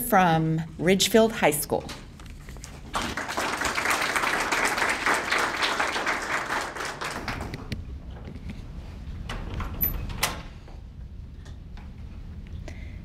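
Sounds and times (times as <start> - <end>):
audience applauding: 2.8 - 7.8.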